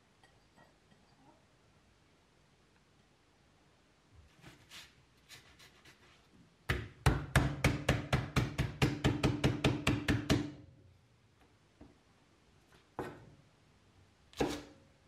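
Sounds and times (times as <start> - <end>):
cleaver chopping on wooden board: 6.7 - 10.5, 14.4 - 14.7.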